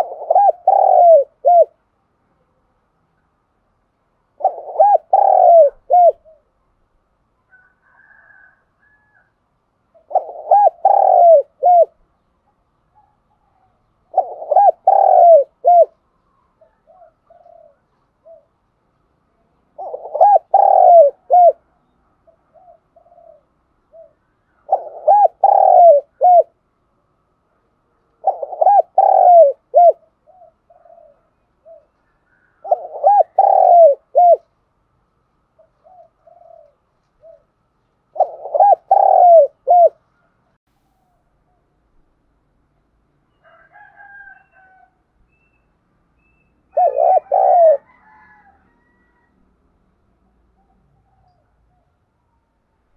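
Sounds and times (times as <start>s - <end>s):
dove cooing: 0.0s - 1.8s, 4.4s - 6.5s, 9.9s - 12.0s, 12.9s - 16.0s, 16.6s - 18.6s, 19.6s - 26.6s, 28.1s - 34.5s, 35.5s - 40.4s, 46.7s - 49.3s.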